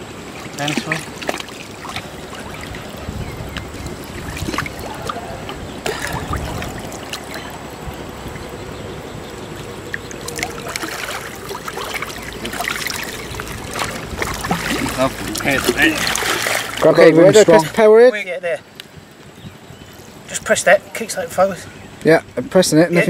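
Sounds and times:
water sloshing and splashing: 0:00.0 - 0:17.8.

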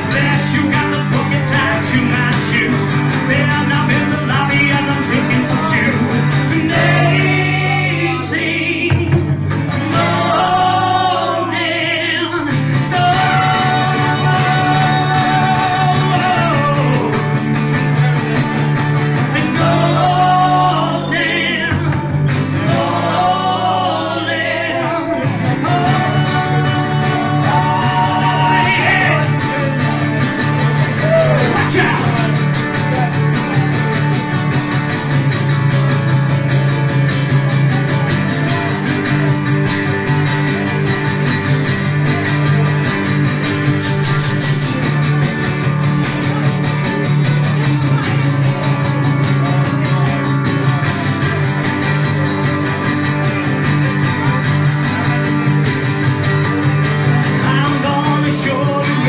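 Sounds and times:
acoustic guitars strumming: 0:00.0 - 0:59.0
man singing: 0:00.0 - 0:59.0.

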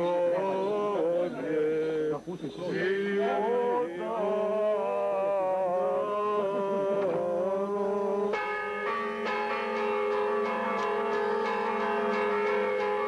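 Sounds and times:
voices singing a chant: 0:00.0 - 0:08.4
church bells ringing: 0:07.4 - 0:13.0.

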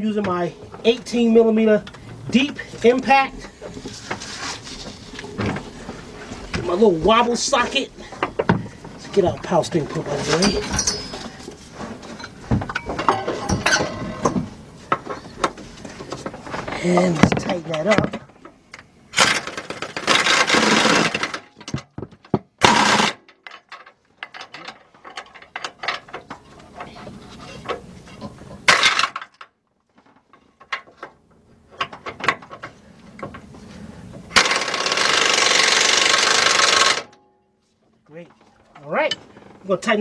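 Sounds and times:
impact wrench hammering: 0:34.4 - 0:37.2.

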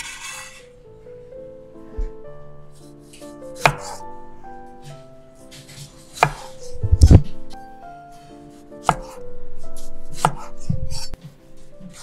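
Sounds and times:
knife cutting through tomato: 0:00.0 - 0:00.7, 0:02.8 - 0:04.0, 0:04.8 - 0:07.4, 0:08.5 - 0:09.2, 0:09.8 - 0:12.0.

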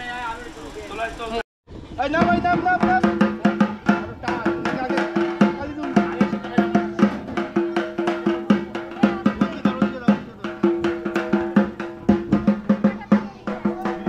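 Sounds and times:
drums beaten in fast rhythm: 0:02.1 - 0:14.0.

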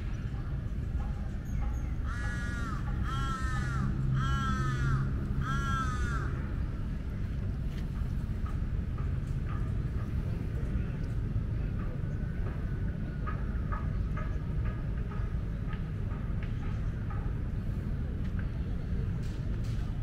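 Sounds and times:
low background rumble: 0:00.0 - 0:20.0
crow cawing: 0:02.0 - 0:06.4.

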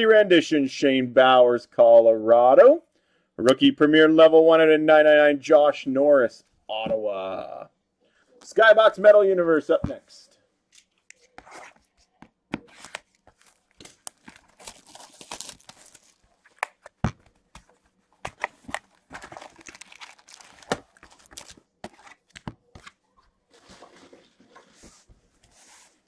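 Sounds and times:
card pack wrappers tearing: 0:12.7 - 0:17.0, 0:18.3 - 0:22.4.

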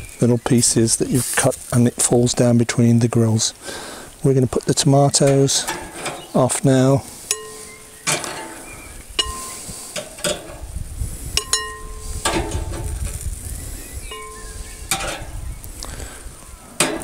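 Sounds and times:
faint grill sizzle: 0:00.0 - 0:17.0
tongs clinking against glass bowl: 0:07.3 - 0:08.3, 0:09.2 - 0:09.6, 0:11.4 - 0:12.0.

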